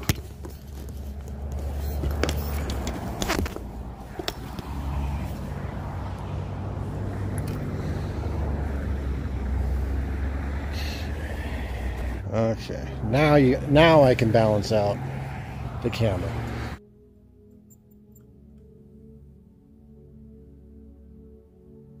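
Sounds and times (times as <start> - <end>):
vehicle engine running: 0.0 - 16.8
sharp clicks and knocks: 2.0 - 4.7.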